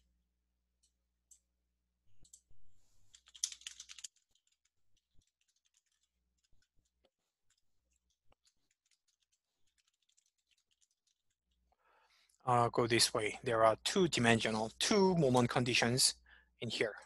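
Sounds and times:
computer keyboard typing: 2.2s - 2.5s, 3.1s - 6.7s, 7.5s - 11.4s.

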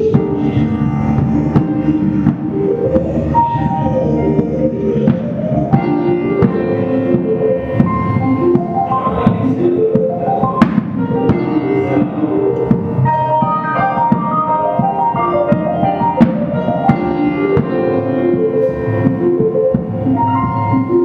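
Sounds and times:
electric keyboard runs: 0.0s - 21.0s
drum and percussion hits: 5.0s - 20.2s.

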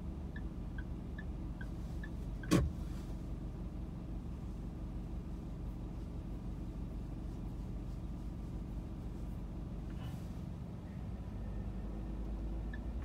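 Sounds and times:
turn signal ticking: 0.0s - 2.8s, 11.8s - 13.0s
car engine idling: 0.0s - 13.0s.

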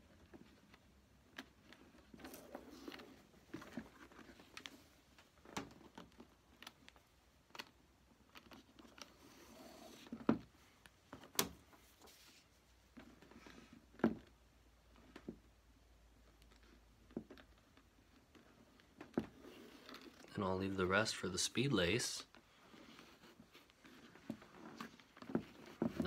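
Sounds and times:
lace and leather rustling: 16.1s - 20.3s, 22.3s - 26.0s.

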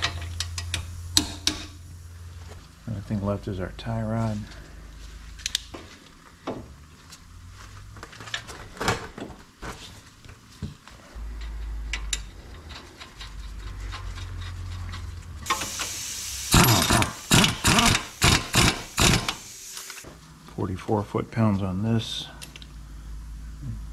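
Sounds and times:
air hissing: 15.4s - 20.1s
air impact wrench bursts: 15.5s - 20.1s.

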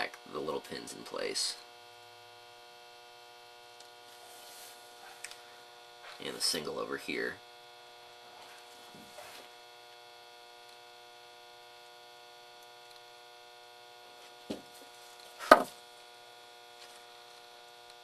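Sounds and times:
electrical mains hum: 0.0s - 18.0s
sharp knocks on bench: 15.4s - 15.8s.

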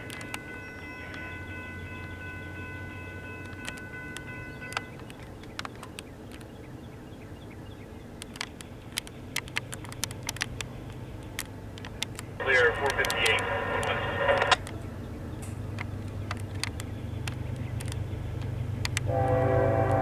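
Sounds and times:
crossing warning bell ringing: 0.0s - 5.4s, 19.0s - 20.0s
diesel locomotive rumble: 0.0s - 20.0s
sharp clicks: 3.4s - 6.5s, 8.2s - 19.1s.

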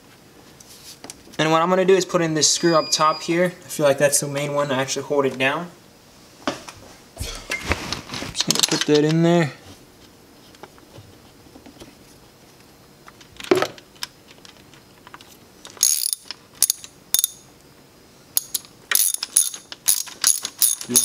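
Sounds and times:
hand ratchet clicking: 15.8s - 17.4s, 18.4s - 21.0s.

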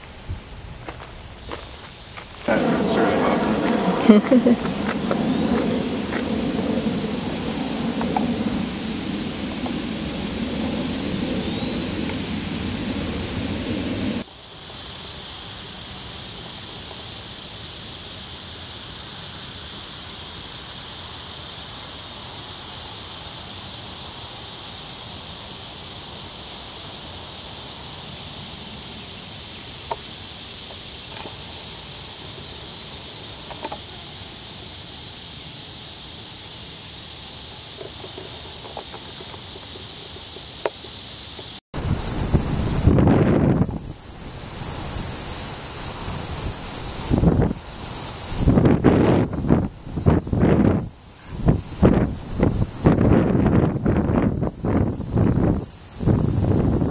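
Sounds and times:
high-pitched insect chorus: 0.0s - 56.9s
low rushing noise: 2.4s - 14.3s.

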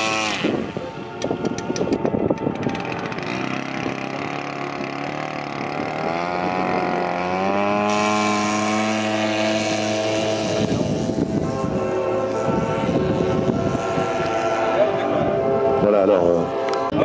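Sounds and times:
model plane engine: 0.0s - 17.0s
rough noisy engine sound: 0.0s - 17.0s.

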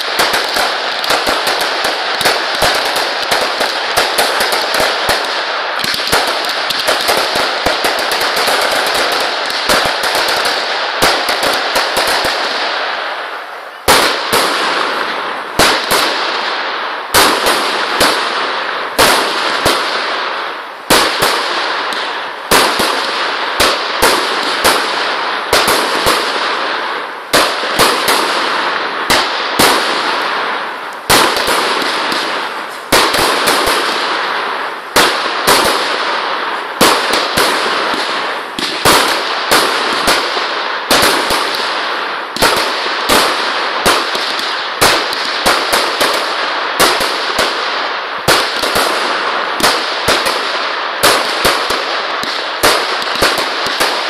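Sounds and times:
crackling hiss: 0.0s - 54.0s
fireworks bangs: 0.0s - 54.0s.

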